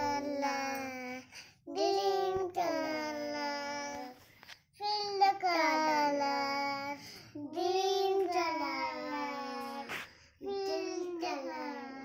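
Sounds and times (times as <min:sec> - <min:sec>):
girl singing: 0:00.0 - 0:04.2, 0:04.8 - 0:12.0.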